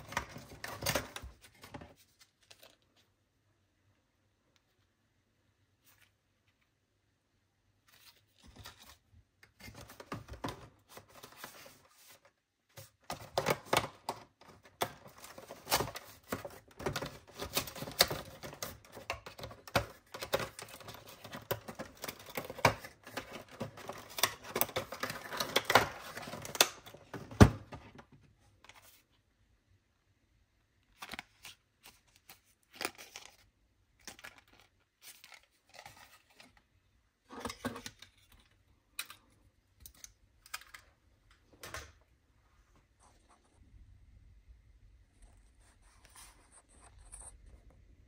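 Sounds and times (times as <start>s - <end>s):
paper and plastic rustling: 0.0s - 3.2s, 7.8s - 29.2s.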